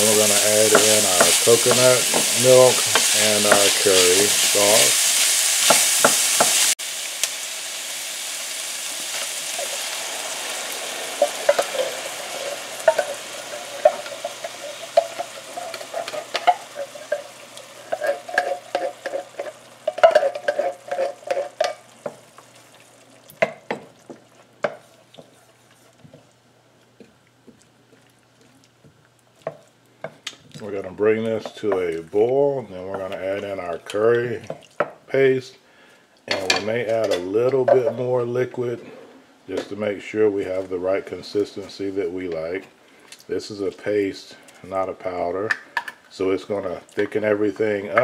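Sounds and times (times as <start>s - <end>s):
wooden spoon scraping a pan: 0.0s - 6.7s, 11.0s - 22.2s, 23.4s - 26.3s
vegetables sizzling in oil: 0.0s - 35.1s.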